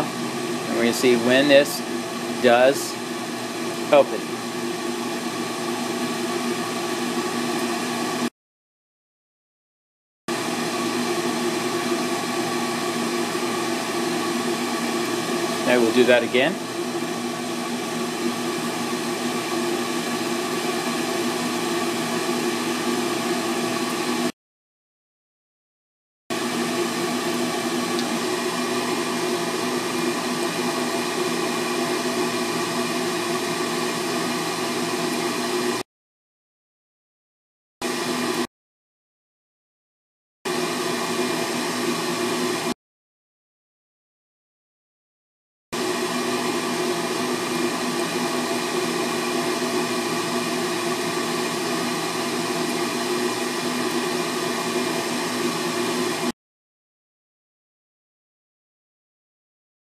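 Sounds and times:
furnace blower motor hum: 0.0s - 8.3s, 10.3s - 24.3s, 26.3s - 35.8s, 37.8s - 38.5s, 40.5s - 42.8s, 45.8s - 56.3s.

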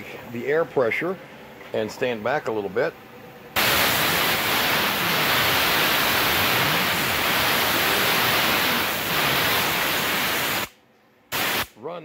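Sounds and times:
compressed air nozzle hissing: 3.6s - 11.7s.

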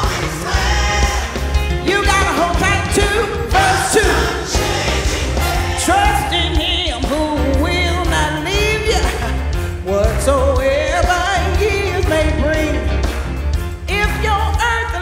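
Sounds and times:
woman singing gospel song: 0.0s - 5.0s, 5.7s - 12.9s, 13.9s - 15.0s
drum kit: 0.0s - 15.0s.

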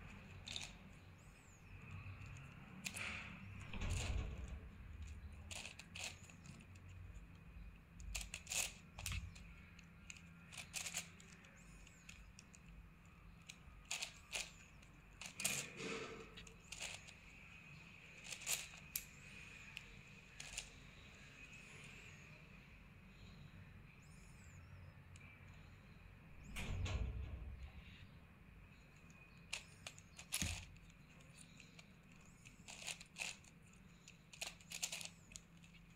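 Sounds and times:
plastic puzzle cube clacking: 0.0s - 1.0s, 5.0s - 12.7s, 13.3s - 15.8s, 16.4s - 17.3s, 18.1s - 20.8s, 29.4s - 35.9s.

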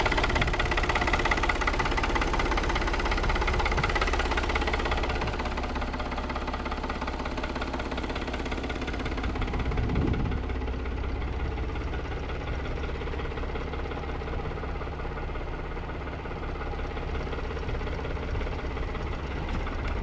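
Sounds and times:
tractor diesel engine idling: 0.0s - 20.0s.

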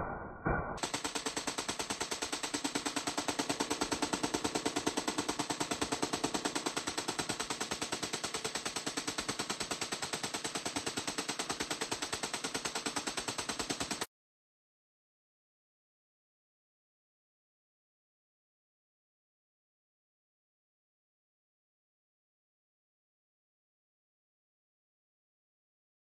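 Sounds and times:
machine gun automatic burst: 0.8s - 14.1s.

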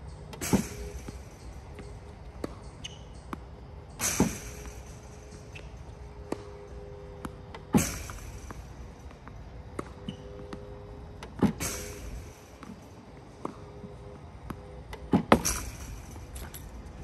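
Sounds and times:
tennis balls bouncing: 0.0s - 16.9s
ball machine launching ball: 0.3s - 1.6s, 3.9s - 9.0s, 11.2s - 12.9s, 15.0s - 16.9s
racket hitting ball: 0.3s - 16.4s.

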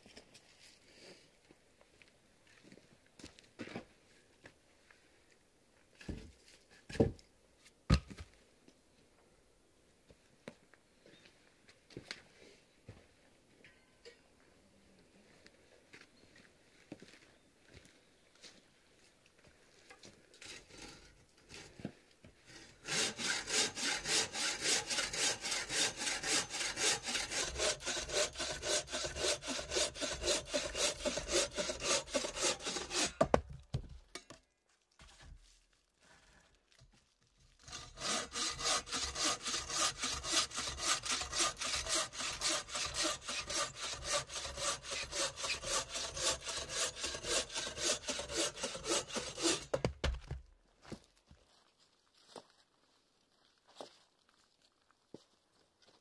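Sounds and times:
bow saw cutting log: 20.4s - 21.7s, 22.5s - 33.4s, 37.6s - 49.8s.

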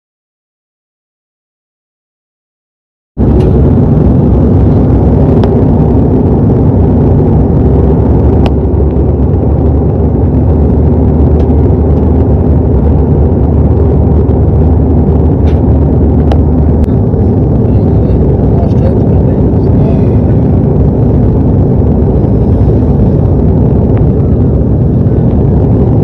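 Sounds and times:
jet engine cabin rumble: 3.2s - 26.0s.

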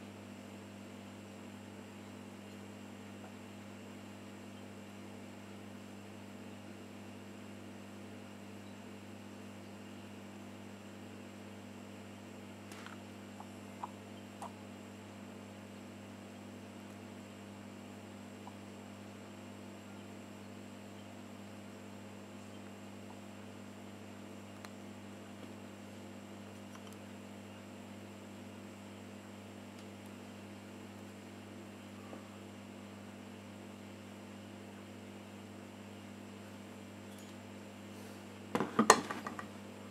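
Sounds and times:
low electrical hum: 0.0s - 39.9s.

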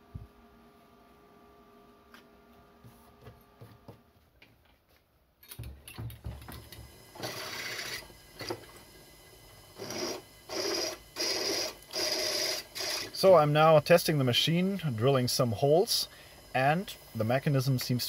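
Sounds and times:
drill press drilling into metal: 6.7s - 8.8s, 9.8s - 13.2s.

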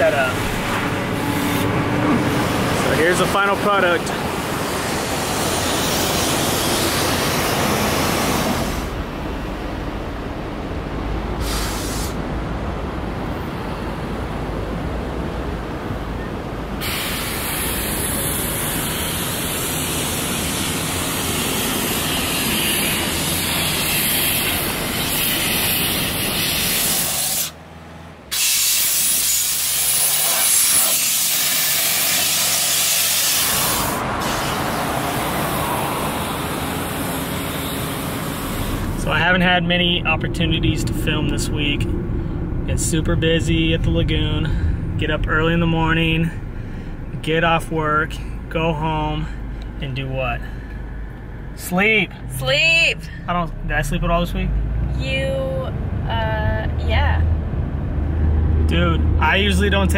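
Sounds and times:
rushing wind and water: 0.0s - 16.9s
faint diesel engine running: 0.0s - 59.9s
hose spraying water: 11.4s - 12.2s, 16.8s - 27.6s, 28.3s - 39.0s.

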